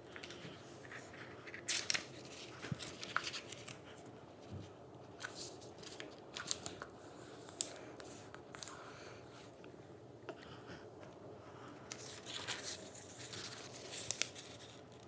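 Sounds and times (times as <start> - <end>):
paper rustling and creasing: 0.0 - 4.0, 5.2 - 8.7, 11.9 - 15.0.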